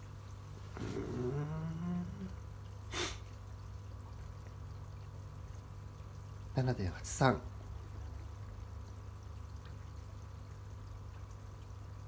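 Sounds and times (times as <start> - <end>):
low steady hum: 0.0 - 12.0
water trickling into pond: 0.0 - 12.0
man humming hmm: 0.8 - 2.4
person sniffing: 2.9 - 3.3.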